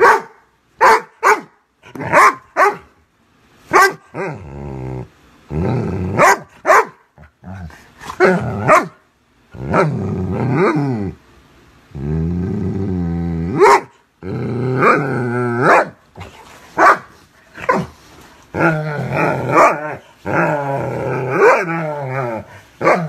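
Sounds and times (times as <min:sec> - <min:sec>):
dog barking: 0:00.0 - 0:03.0, 0:03.7 - 0:04.2, 0:06.2 - 0:07.1, 0:08.6 - 0:09.0, 0:13.6 - 0:14.0, 0:15.6 - 0:16.0, 0:16.8 - 0:17.9
dog growling: 0:04.1 - 0:06.3, 0:07.2 - 0:08.8, 0:09.5 - 0:11.2, 0:11.9 - 0:16.5, 0:18.5 - 0:23.0.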